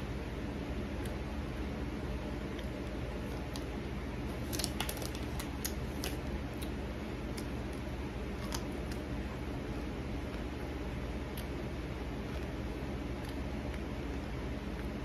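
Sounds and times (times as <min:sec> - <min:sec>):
steady low hum: 0:00.0 - 0:15.0
popcorn bag crinkling: 0:04.3 - 0:06.3, 0:08.4 - 0:09.0.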